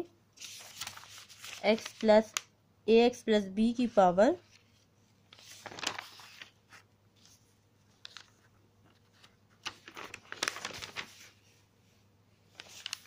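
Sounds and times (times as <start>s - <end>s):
paper pages rustling: 0.4s - 2.5s, 4.4s - 11.6s, 12.4s - 13.0s.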